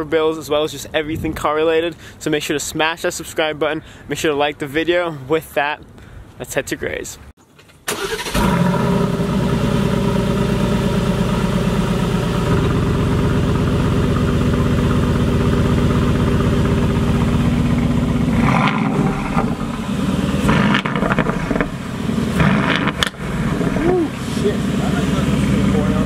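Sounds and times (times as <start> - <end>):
car engine idling: 8.0 - 26.0.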